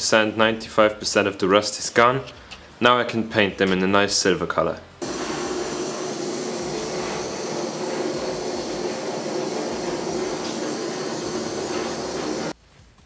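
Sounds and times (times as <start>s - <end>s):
gas blowtorch hissing: 5.0s - 12.6s.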